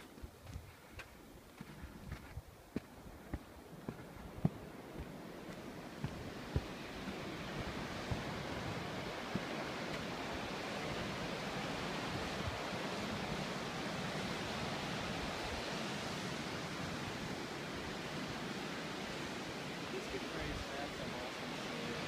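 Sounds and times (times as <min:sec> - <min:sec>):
ocean surf breaking: 0:04.6 - 0:22.0.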